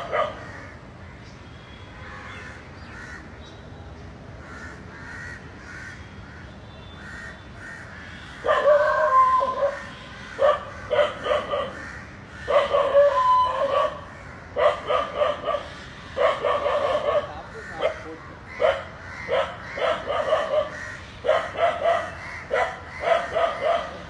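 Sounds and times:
crows cawing faintly: 0.0s - 3.3s, 4.4s - 13.2s, 13.9s - 24.0s
dog barking and whining: 8.5s - 9.8s, 12.5s - 14.0s, 16.2s - 17.3s, 18.6s - 24.0s.

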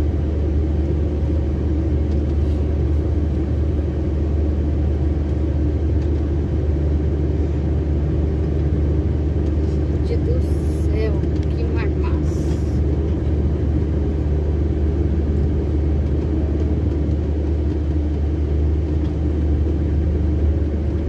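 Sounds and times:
truck diesel engine running: 0.0s - 21.0s.

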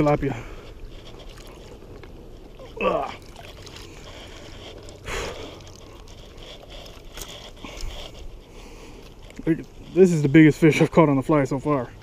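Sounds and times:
water running off net: 1.0s - 8.2s.

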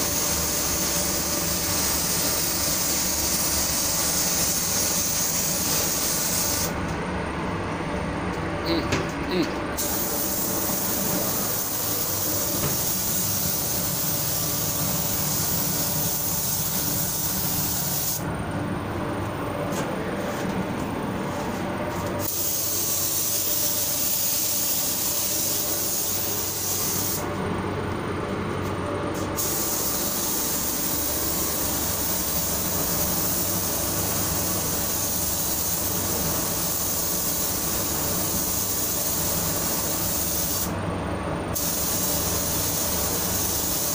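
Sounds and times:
spray gun hissing: 0.0s - 6.7s, 9.8s - 18.2s, 22.2s - 27.2s, 29.4s - 40.7s, 41.6s - 43.9s.

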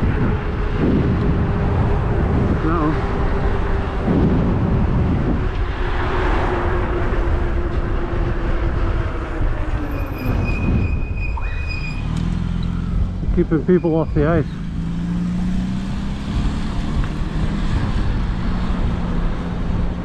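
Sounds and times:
wind rushing over microphone: 0.0s - 20.0s
thin high squeal: 9.9s - 12.2s.

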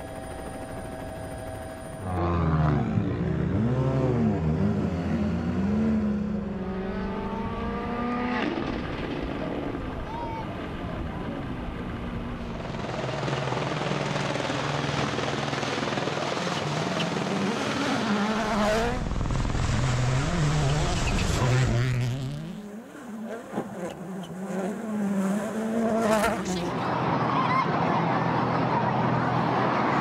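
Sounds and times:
rally car engines revving: 2.1s - 9.6s, 15.0s - 30.0s.

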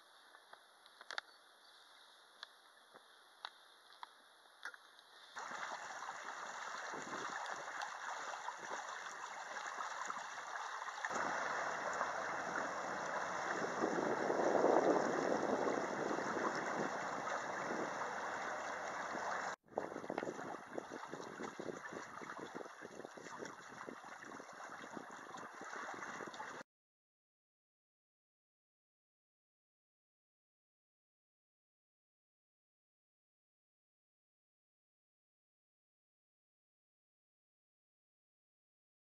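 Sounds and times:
water rushing along a boat hull: 5.4s - 26.6s.

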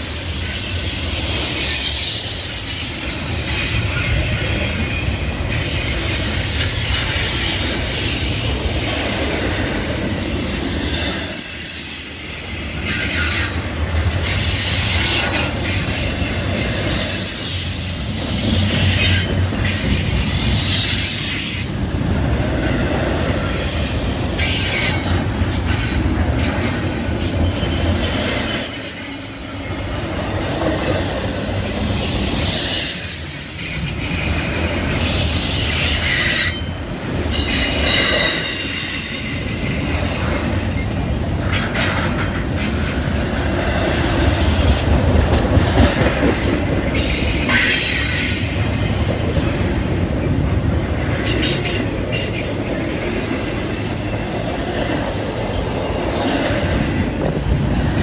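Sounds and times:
train wheels clattering on rail: 0.0s - 58.0s
high-pitched wheel squeal: 10.0s - 17.9s, 26.5s - 30.5s.

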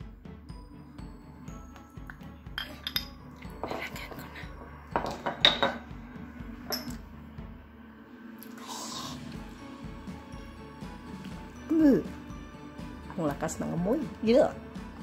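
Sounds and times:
background music with steady beat: 0.0s - 15.0s
glass bottle and glasses clinking: 2.1s - 5.9s, 6.6s - 7.0s.

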